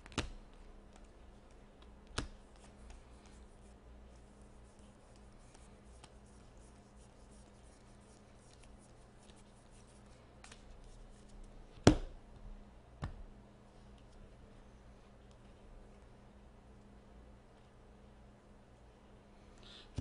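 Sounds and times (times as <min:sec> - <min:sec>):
cards being flipped by hand: 0:08.4 - 0:11.6.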